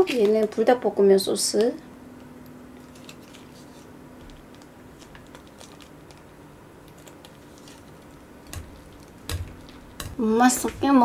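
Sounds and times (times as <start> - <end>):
plastic sachet crinkling: 4.2 - 10.0.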